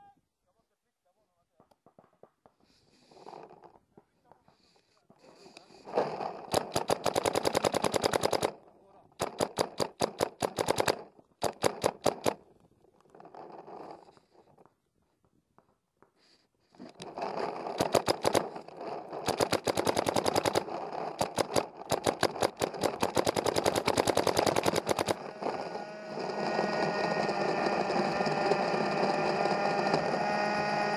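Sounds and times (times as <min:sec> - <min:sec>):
paintball marker firing: 0:05.9 - 0:12.5, 0:16.9 - 0:25.7
steady noise: 0:16.8 - 0:30.7.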